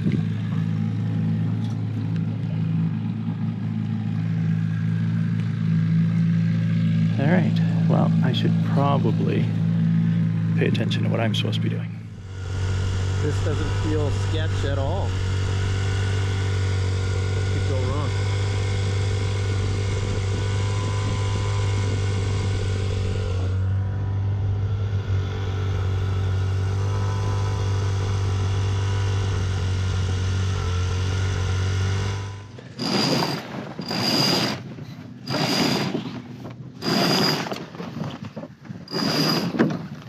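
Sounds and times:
outboard motor running: 0.0 - 40.0
halyard rasping through blocks: 32.5 - 40.0.

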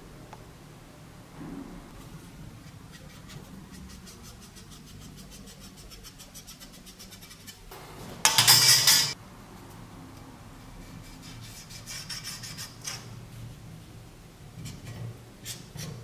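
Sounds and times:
marker scratching on metal: 2.6 - 7.7, 10.8 - 13.1, 14.6 - 16.0.

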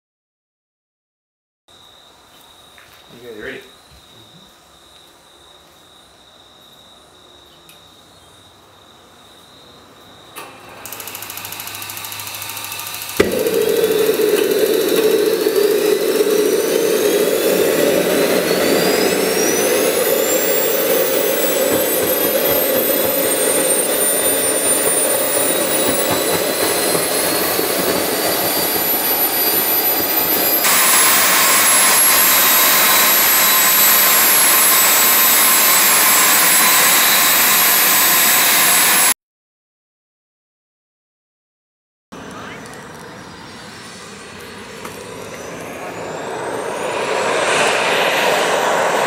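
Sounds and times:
jet turbine whine: 10.1 - 39.2, 42.2 - 49.0.

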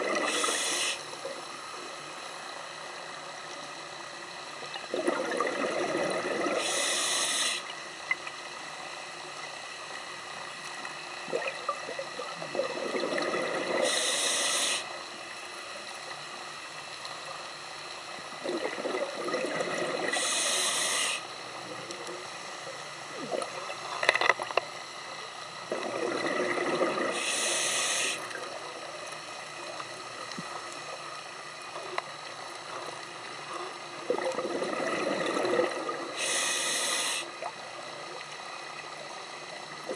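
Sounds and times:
diver breathing through regulator: 0.0 - 1.1, 6.5 - 7.7, 13.8 - 14.9, 20.1 - 21.3, 26.9 - 28.3, 36.1 - 37.4.

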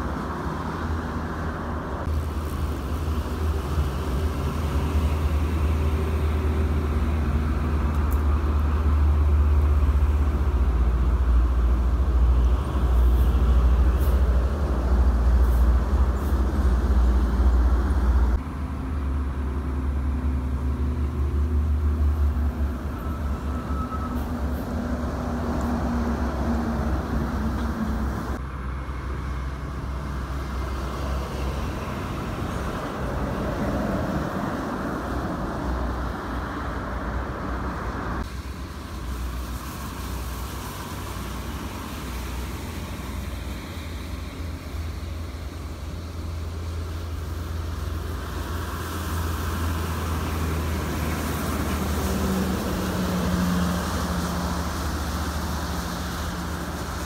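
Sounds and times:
tyre hiss on wet road: 0.0 - 18.4, 29.9 - 57.0
buses and trucks passing: 0.0 - 57.0.

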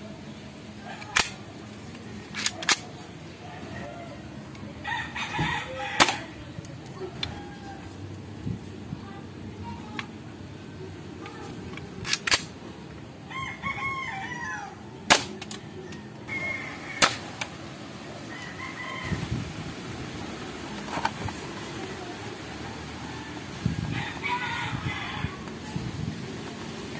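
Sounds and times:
rooster crowing: 4.8 - 6.3, 13.3 - 14.9, 16.3 - 17.4, 18.2 - 19.3, 22.8 - 25.5.

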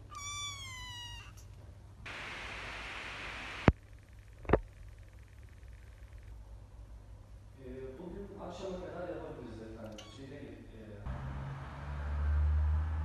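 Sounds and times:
kitten meowing: 0.0 - 1.5, 9.9 - 10.2
steady hiss: 2.1 - 3.7.

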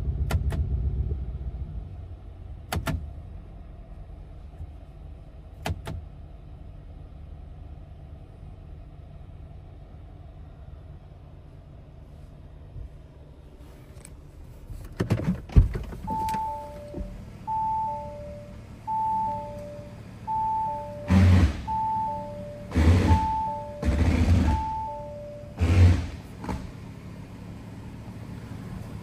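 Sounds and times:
rustling rumble: 0.0 - 6.8
two-tone warning chime: 16.1 - 25.6.

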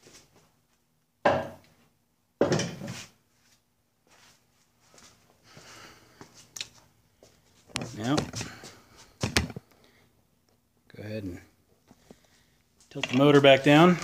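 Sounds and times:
faint scuffing: 0.0 - 0.8, 2.8 - 9.3.

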